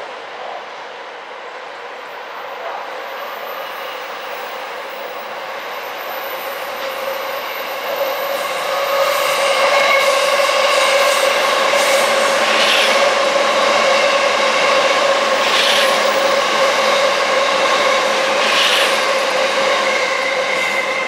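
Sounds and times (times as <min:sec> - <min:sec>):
electric train running: 0:06.0 - 0:21.0.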